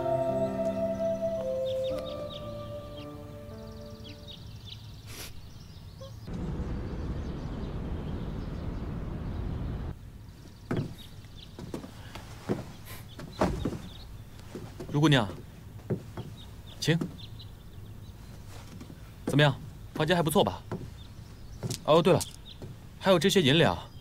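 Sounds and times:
music: 0.0s - 4.4s
objects knocking and thudding: 10.7s - 16.3s.

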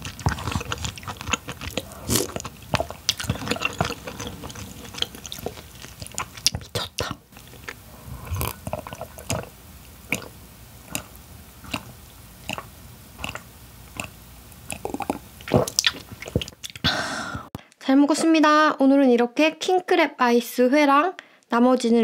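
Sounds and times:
person chewing with wet clicks: 0.0s - 16.9s.

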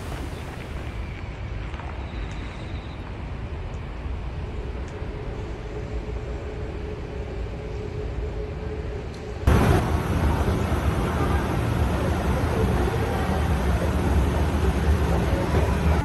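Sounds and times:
outdoor rumble and hiss: 0.0s - 16.0s
faint steady hum: 3.6s - 16.0s.

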